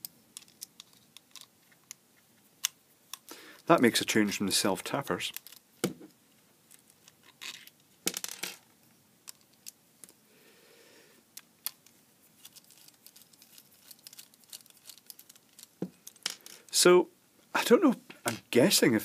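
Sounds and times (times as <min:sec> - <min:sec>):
small metal bolts handled: 0:00.4 - 0:01.9, 0:05.3 - 0:05.6, 0:11.6 - 0:16.7.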